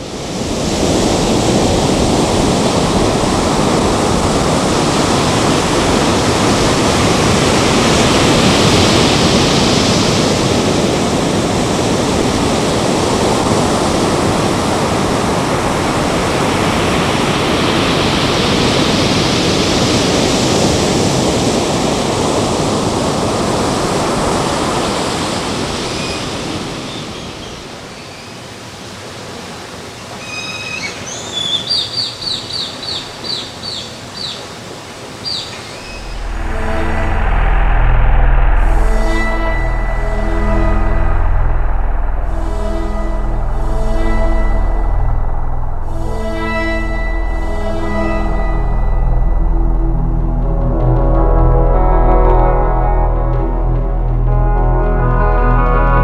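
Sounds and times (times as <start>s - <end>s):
ocean waves breaking: 0.0s - 27.8s.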